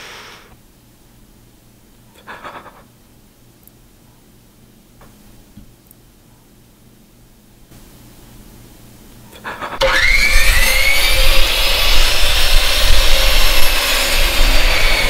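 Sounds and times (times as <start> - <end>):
motor running with rasping whine: 9.8 - 15.0.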